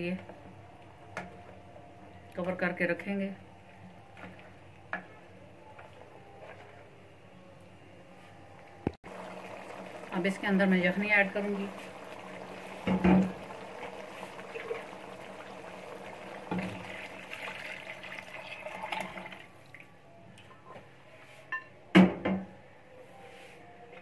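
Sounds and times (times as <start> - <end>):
liquid splashing and hissing in pan: 11.4 - 18.0.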